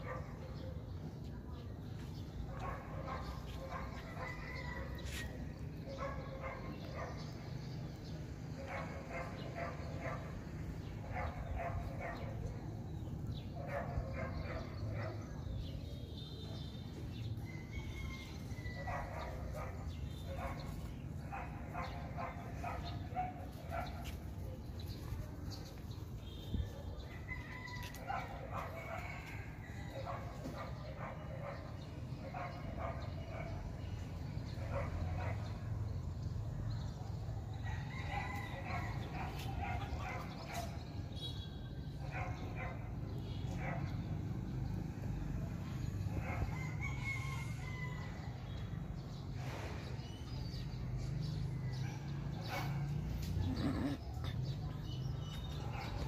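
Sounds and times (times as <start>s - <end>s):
dog barking: 0.0s - 0.9s, 2.5s - 5.2s, 5.9s - 7.4s, 8.5s - 12.6s, 13.6s - 15.4s, 18.7s - 24.2s, 28.0s - 35.9s, 37.9s - 40.9s, 41.9s - 44.2s, 46.0s - 46.6s, 51.7s - 54.5s, 55.2s - 56.0s
animal calls: 53.2s - 54.5s.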